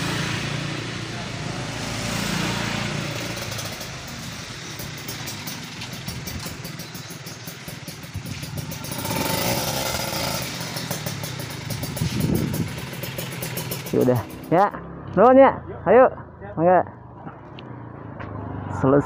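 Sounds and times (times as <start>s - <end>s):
motorcycle engine running: 0.0s - 15.1s.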